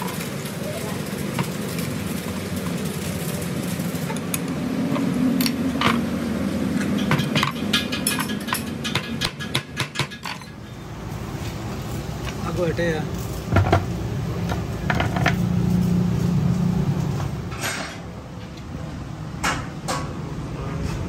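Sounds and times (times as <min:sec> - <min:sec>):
hammer striking steel: 0:06.8 - 0:10.6.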